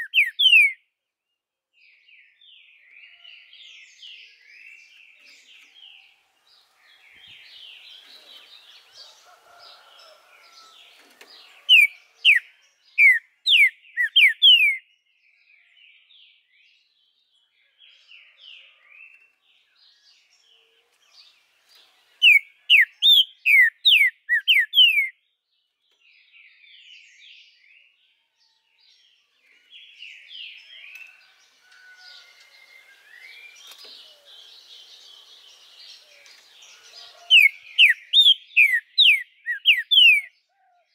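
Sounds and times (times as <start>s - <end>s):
bird singing whistled notes: 0.0s - 0.9s, 11.6s - 16.4s, 22.2s - 25.2s, 35.2s - 40.4s
faint chirping of birds: 0.0s - 40.9s.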